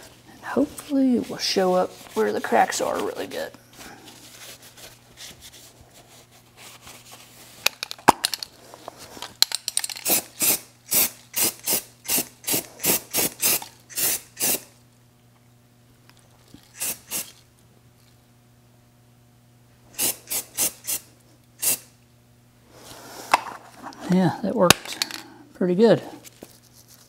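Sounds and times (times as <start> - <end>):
aerosol can spraying: 10.0 - 14.7, 16.7 - 17.4, 20.0 - 21.9.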